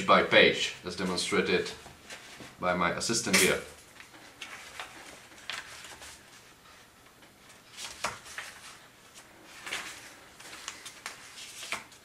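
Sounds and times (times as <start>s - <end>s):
sharp page flicks: 3.3s - 3.6s
book pages rustling: 3.8s - 12.0s.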